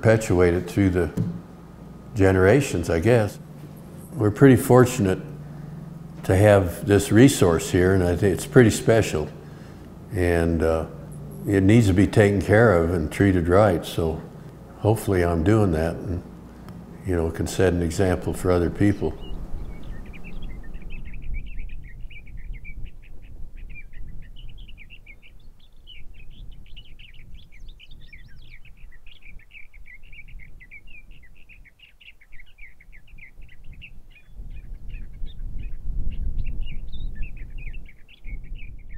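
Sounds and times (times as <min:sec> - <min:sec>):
low rumbling noise: 0:00.0 - 0:25.5
birds chirping: 0:00.0 - 0:38.9.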